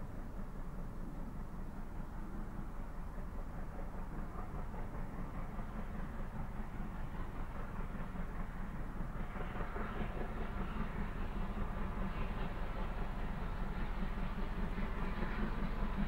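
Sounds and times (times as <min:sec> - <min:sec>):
distant steam locomotive working: 0:00.0 - 0:16.0.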